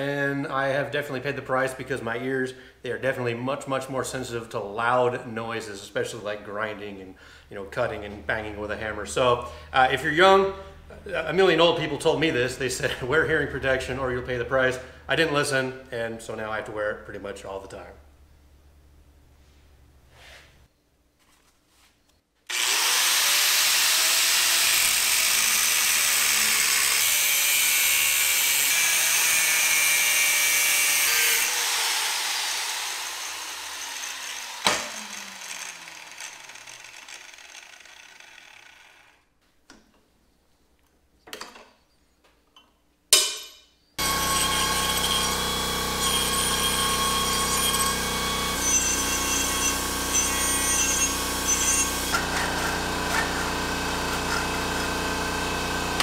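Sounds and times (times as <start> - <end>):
angle grinder cutting metal: 22.5 - 39.2, 44.0 - 56.0
air compressor running: 31.4 - 39.0, 44.0 - 56.0.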